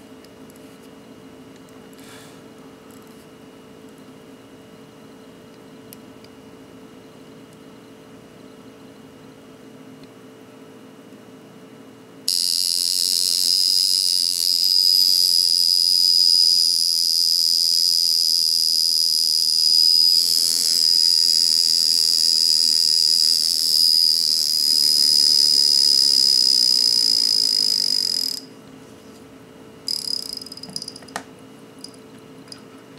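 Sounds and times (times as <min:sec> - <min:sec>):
alarm watch buzzing: 0:12.3 - 0:28.5, 0:29.9 - 0:31.1.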